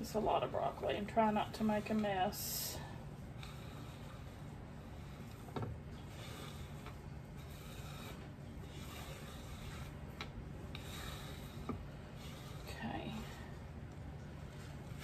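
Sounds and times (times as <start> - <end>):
hand sweeping chopped vegetables: 0.0 - 3.0
steady low hum: 0.0 - 15.0.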